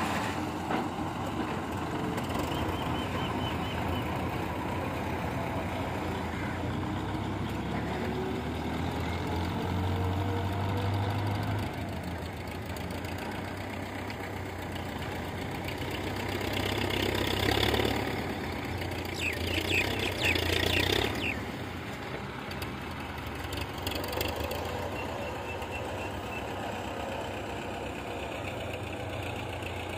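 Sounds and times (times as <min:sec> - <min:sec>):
diesel tractor engine running: 0:00.0 - 0:29.9
high chirps: 0:19.1 - 0:21.4.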